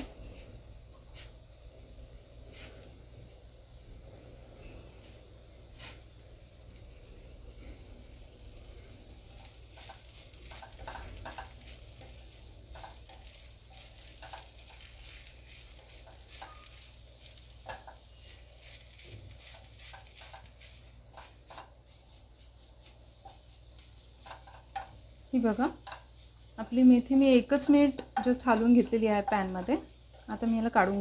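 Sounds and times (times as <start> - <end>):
leaves sizzling in a pan: 0.0 - 31.0
wooden spatula scraping a pan: 9.1 - 31.0.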